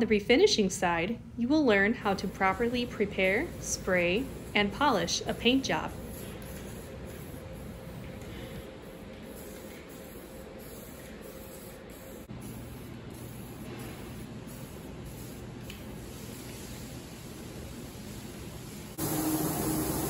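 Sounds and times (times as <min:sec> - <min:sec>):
aerosol spray can hissing: 0:09.1 - 0:20.0.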